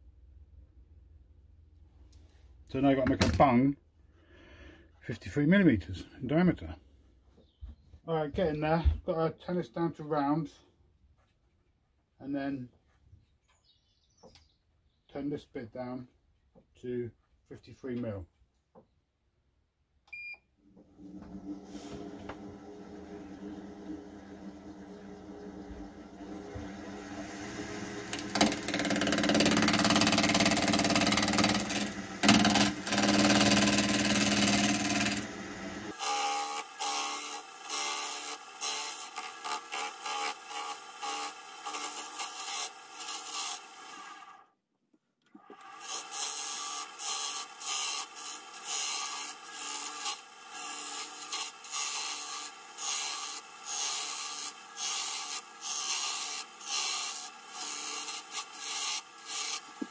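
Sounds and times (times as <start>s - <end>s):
lathe motor hum: 20.8s - 44.3s
turning tool cutting wood on lathe: 20.8s - 44.4s, 45.4s - 59.9s.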